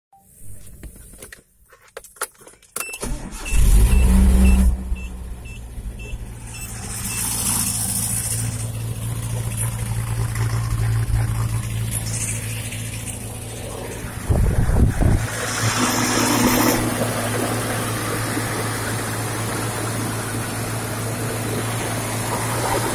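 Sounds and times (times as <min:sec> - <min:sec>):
high warning chime beeping: 0:02.8 - 0:07.5
engine starting and idling: 0:02.8 - 0:22.9
loud low rush: 0:04.8 - 0:22.9.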